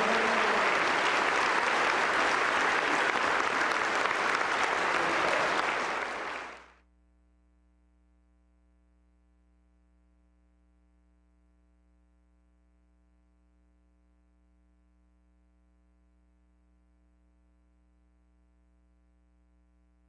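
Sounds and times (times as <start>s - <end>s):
large audience applauding: 0.0s - 6.7s.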